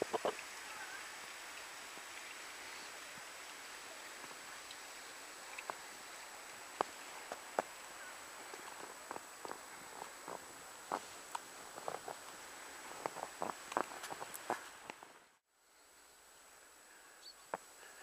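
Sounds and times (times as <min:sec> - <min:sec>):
quiet outdoor hiss: 0:00.0 - 0:18.0
footsteps crunching in snow: 0:06.7 - 0:15.3.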